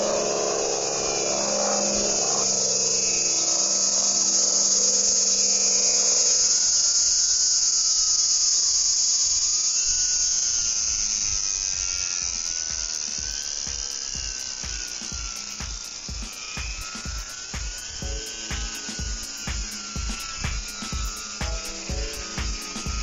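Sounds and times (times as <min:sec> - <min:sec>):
model plane motor whining: 0:00.0 - 0:23.0.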